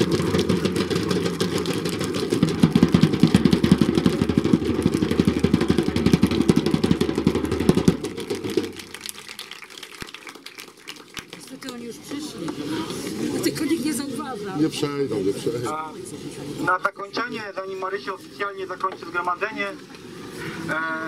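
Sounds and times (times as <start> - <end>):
crowd clapping: 0.0 - 12.4.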